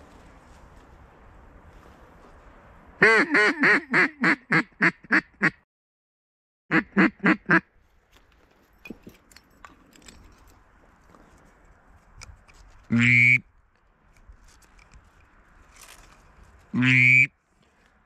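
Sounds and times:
duck call quacks: 0:03.0 - 0:05.6, 0:06.7 - 0:07.6, 0:12.9 - 0:13.4, 0:16.8 - 0:17.3.

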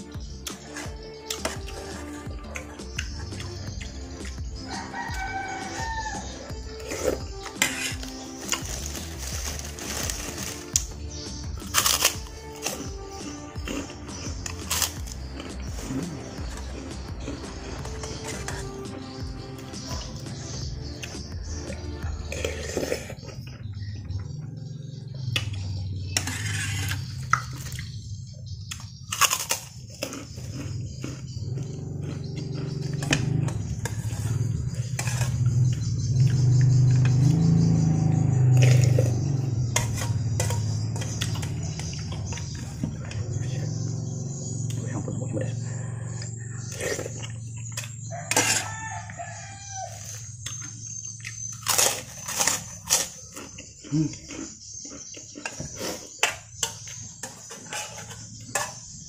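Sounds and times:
person chewing soup: 0:00.0 - 0:59.0
rooster crowing: 0:04.5 - 0:07.2, 0:47.7 - 0:50.7
steady low hum: 0:23.5 - 0:49.4
metal spoon clinking on saucepan: 0:39.8 - 0:41.2.

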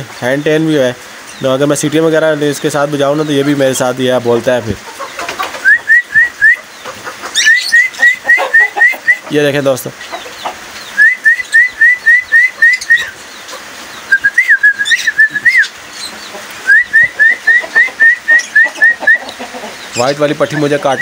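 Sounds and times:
cockatiel whistling: 0:05.6 - 0:06.6, 0:07.4 - 0:09.2, 0:11.0 - 0:13.2, 0:14.1 - 0:15.7, 0:16.7 - 0:19.3.

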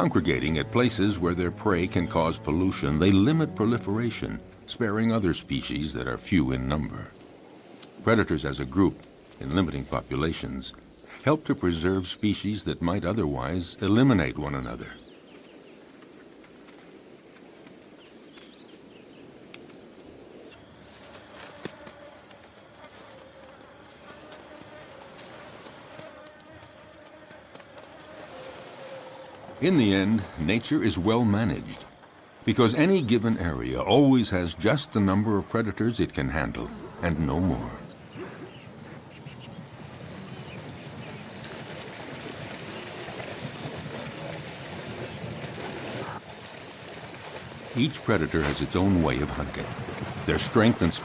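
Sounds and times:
insects trilling: 0:00.0 - 0:39.5
water wash: 0:39.7 - 0:51.0.

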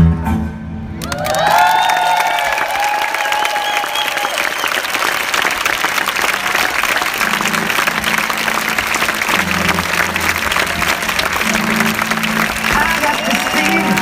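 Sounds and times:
audience applauding: 0:01.0 - 0:14.0.

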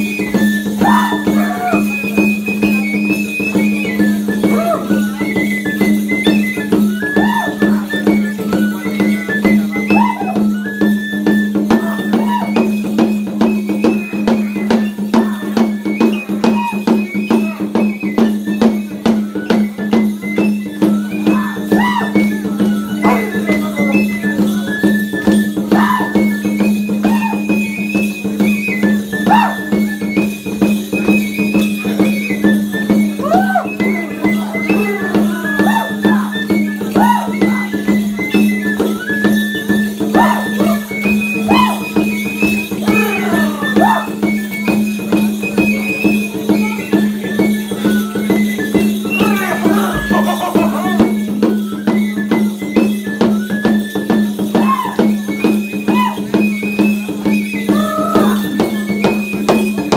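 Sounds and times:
high stepped melody: 0:31.5 - 0:46.8, 0:48.7 - 0:51.6
shaken rattles: 0:47.6 - 0:51.6.

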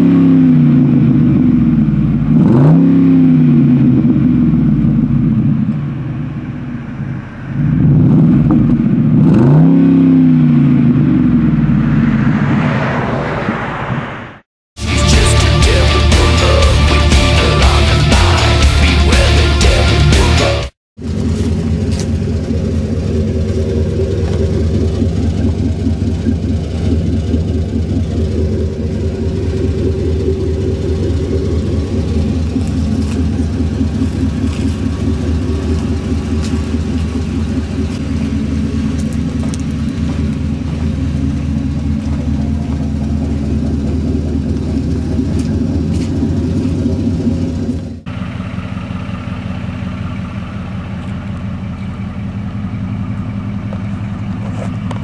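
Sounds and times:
truck engine idling: 0:03.7 - 0:09.2, 0:14.8 - 0:55.0.

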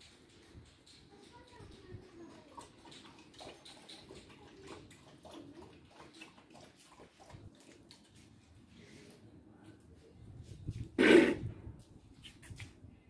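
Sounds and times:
puppy lapping water: 0:00.8 - 0:08.6.

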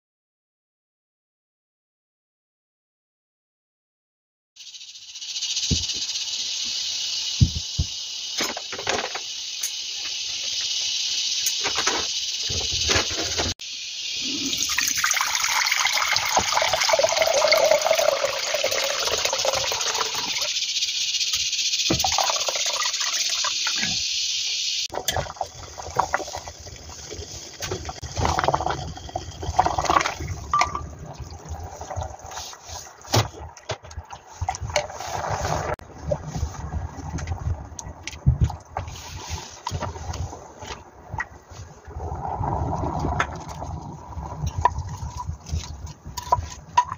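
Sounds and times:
soup bubbling: 0:14.2 - 0:20.5, 0:21.9 - 0:23.7, 0:24.9 - 0:35.8, 0:41.8 - 0:46.6
water running into pot: 0:14.4 - 0:20.5, 0:21.9 - 0:23.7, 0:24.9 - 0:33.0.

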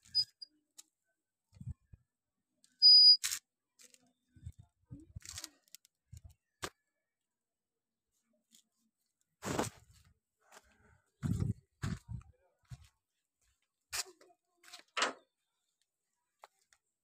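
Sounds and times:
short high beep: 0:02.8 - 0:03.2
knocks and rubs on microphone: 0:11.2 - 0:12.8.

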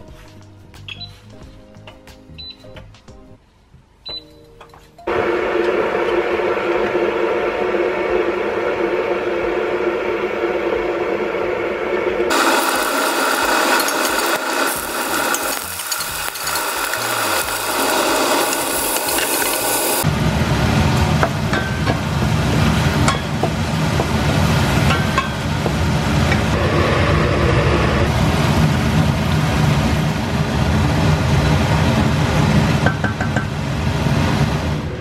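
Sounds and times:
background music: 0:00.0 - 0:05.3
low steady sound: 0:05.1 - 0:12.4.

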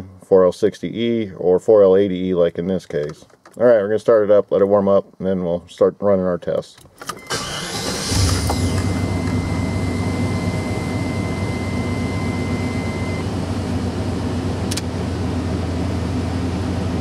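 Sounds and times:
pickup engine idling: 0:07.3 - 0:12.6
thin steady whistle: 0:09.0 - 0:13.2
click: 0:14.7 - 0:14.9.

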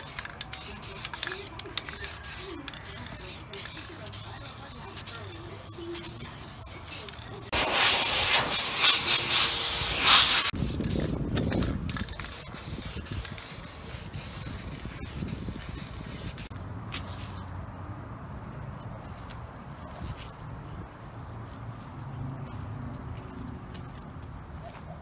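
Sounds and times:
aerosol spray can hissing: 0:00.0 - 0:11.1, 0:12.0 - 0:16.5.

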